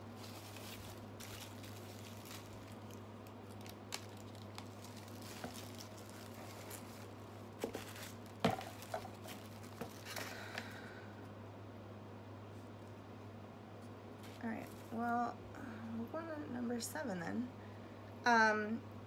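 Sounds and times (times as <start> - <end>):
packaging clicks and rustles: 0.2 - 10.8.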